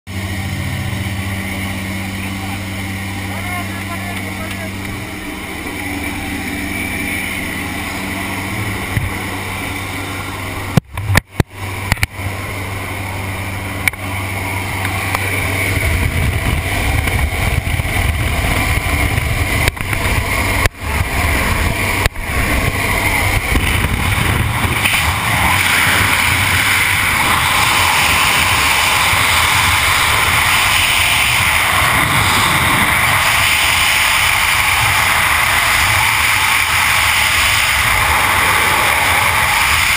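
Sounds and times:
freefall wind noise: 0.1 - 39.9
plane engine droning: 0.1 - 39.9
wind rush at open door: 13.5 - 39.9.

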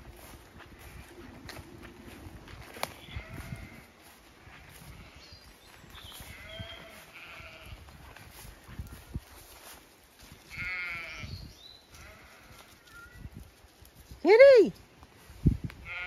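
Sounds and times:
sheep bleating: 3.0 - 3.9, 6.2 - 7.9, 10.5 - 11.3, 11.9 - 12.8.

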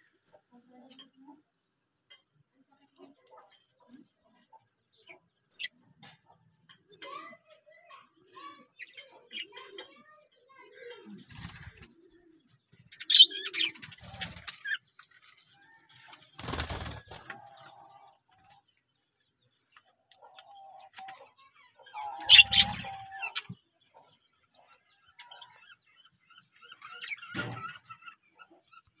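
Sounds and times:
budgerigars chirping and whistling: 5.0 - 5.8, 12.8 - 14.9, 20.2 - 29.0
wings fluttering: 11.2 - 17.7.

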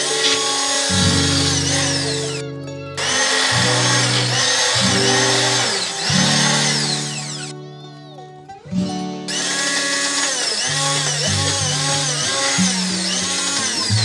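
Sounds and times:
immersion blender motor running: 0.0 - 2.4, 3.0 - 7.5, 9.3 - 14.0.

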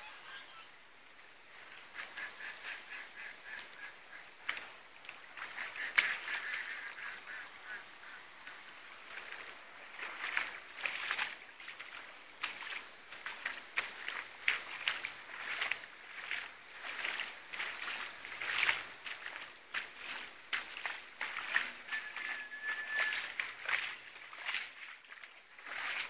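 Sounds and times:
geese honking: 1.8 - 4.6, 5.5 - 8.3, 21.2 - 23.4.

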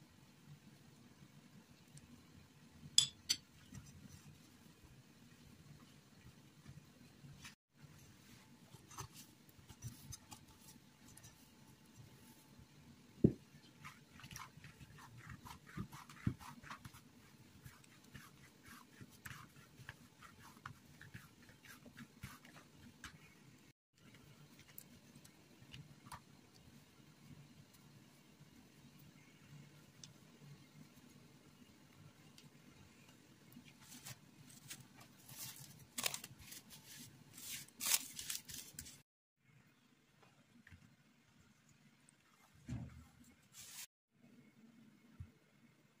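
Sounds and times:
hands kneading sticky dough: 13.3 - 23.6
cling film crinkling: 34.6 - 39.0.

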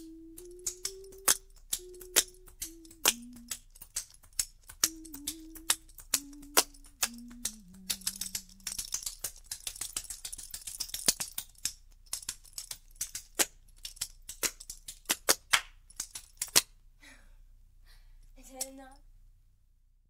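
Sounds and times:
folk song on a record: 0.0 - 10.6.

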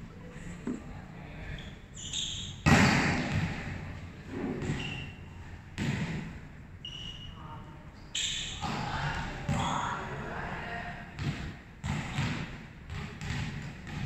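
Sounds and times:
ball hitting hard court floor: 2.6 - 3.8, 4.4 - 5.0, 5.8 - 6.4, 11.2 - 14.0.

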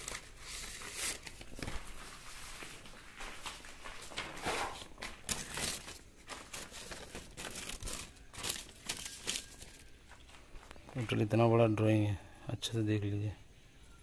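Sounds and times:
paper crinkling and rustling: 0.0 - 11.2.

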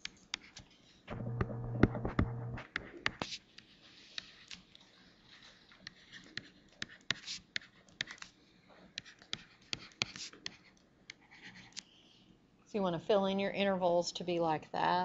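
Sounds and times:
stylus tapping on screen: 1.1 - 3.3
faint stylus scratching: 2.6 - 8.4.

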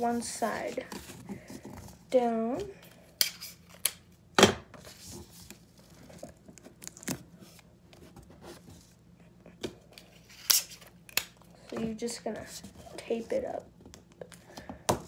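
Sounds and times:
sticky tape ripping: 10.3 - 11.3.

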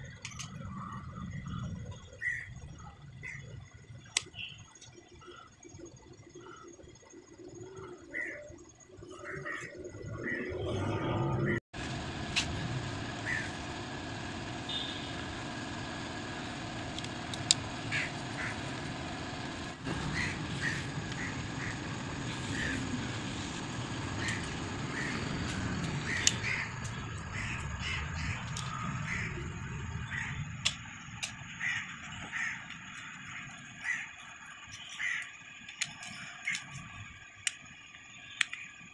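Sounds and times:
steady background hum: 0.0 - 38.9
sharp metallic clicks: 24.2 - 29.3, 30.1 - 38.9.

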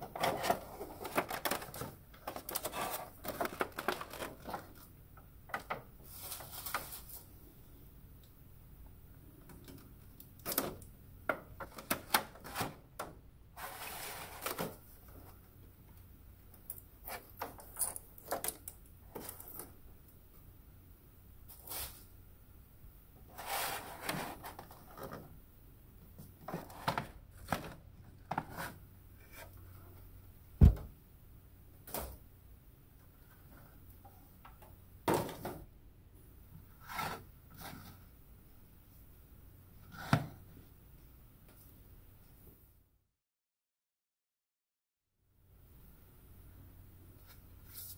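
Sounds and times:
plastic packaging rustling: 0.0 - 4.9
plastic packaging crinkling: 0.5 - 4.8
loud thump: 30.6 - 30.9.

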